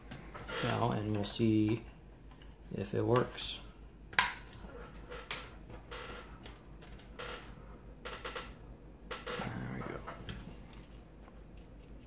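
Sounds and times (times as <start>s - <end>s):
wire leads clicking and rustling: 4.1s - 9.4s.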